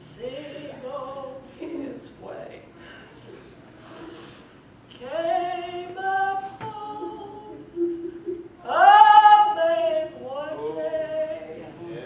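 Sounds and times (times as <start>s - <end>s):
women singing unaccompanied: 0.0s - 2.1s, 4.9s - 8.0s, 8.6s - 11.8s.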